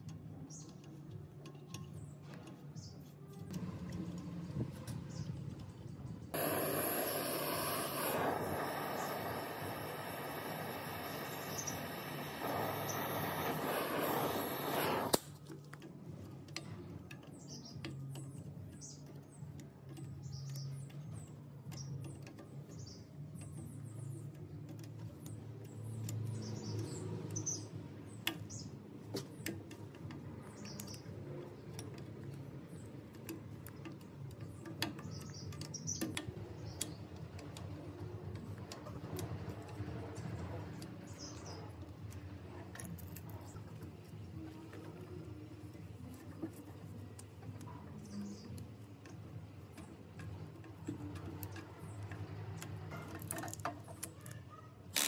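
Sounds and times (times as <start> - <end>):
light clicks and knocks of hand work: 0.0 - 6.1, 10.2 - 55.0
low hum: 3.3 - 15.3
faint high chirps: 6.4 - 15.1
machine running: 6.4 - 15.2.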